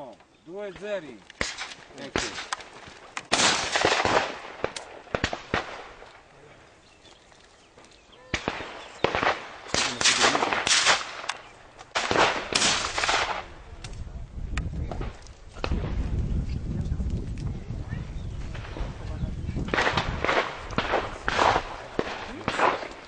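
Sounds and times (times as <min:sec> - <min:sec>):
shotgun shots: 0:00.7 - 0:06.1, 0:08.3 - 0:13.6, 0:19.7 - 0:23.0.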